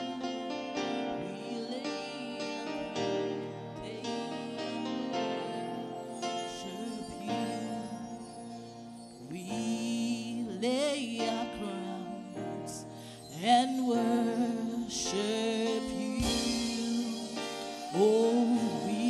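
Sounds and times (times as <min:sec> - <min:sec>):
woman singing: 0:00.0 - 0:19.0.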